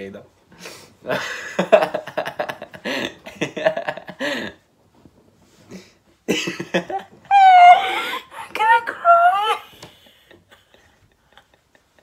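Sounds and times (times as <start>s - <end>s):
man laughing: 6.3s - 8.6s
woman laughing: 6.3s - 12.0s.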